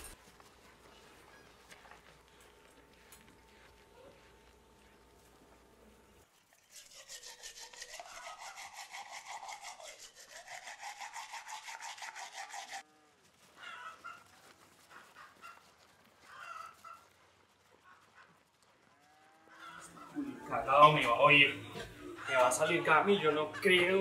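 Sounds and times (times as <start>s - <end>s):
toothbrush scrubbing teeth: 6.2s - 12.8s.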